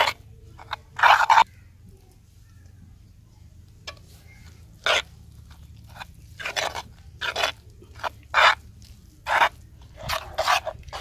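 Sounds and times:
spoon scraping clay bowl: 0.0 - 1.5, 3.9 - 11.0.

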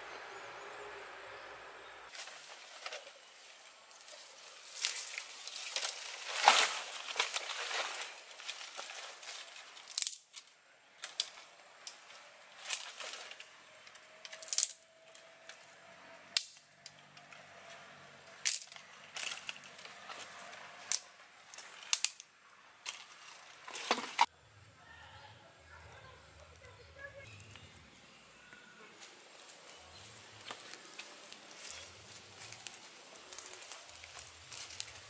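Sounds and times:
twigs rustling: 2.1 - 24.3, 28.9 - 35.0
dry sticks snapping: 4.0 - 23.0, 30.3 - 35.0.

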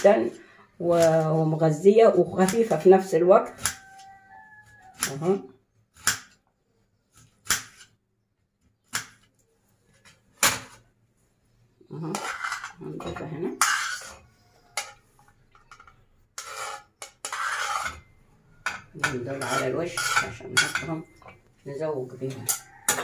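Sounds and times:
knife scraping food into metal bowl: 12.0 - 21.4.

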